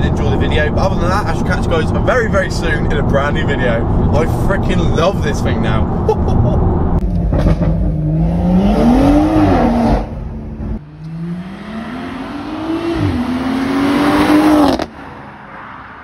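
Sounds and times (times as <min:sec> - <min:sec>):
car engine revving hard: 0:07.3 - 0:14.9.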